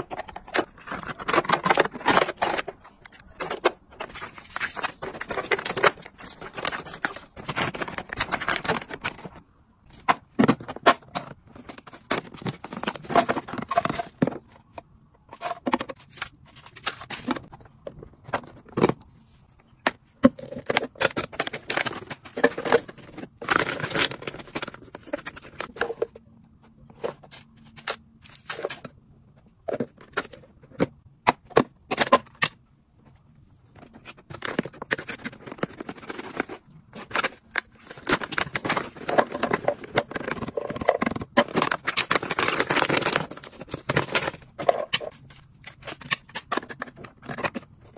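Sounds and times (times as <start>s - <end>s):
plastic containers clicking and tapping: 0.0s - 9.4s, 19.8s - 26.2s, 33.8s - 47.7s
plastic rustling: 0.0s - 14.6s, 33.8s - 47.9s.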